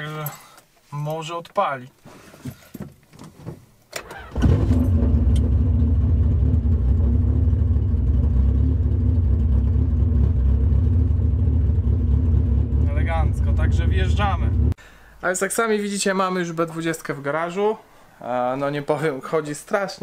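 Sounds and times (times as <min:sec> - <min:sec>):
car engine starting and idling: 0:04.0 - 0:14.8.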